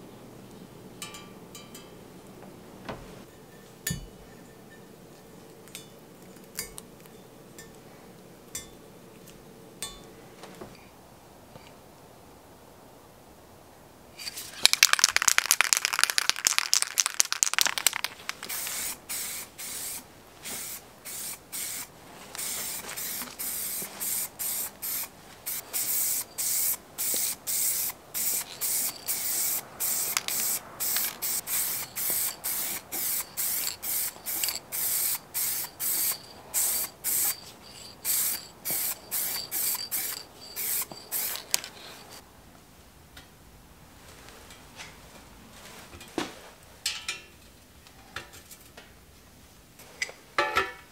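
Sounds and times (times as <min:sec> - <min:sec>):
aerosol can mixing ball rattling: 0:14.2 - 0:20.0, 0:20.6 - 0:42.2
spray can hissing bursts: 0:14.2 - 0:42.2.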